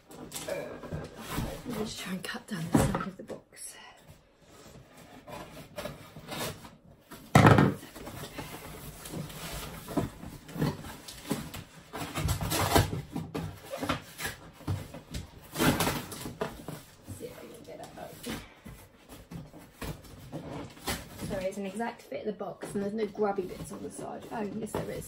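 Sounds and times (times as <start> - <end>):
cardboard scraping: 4.4 - 22.0.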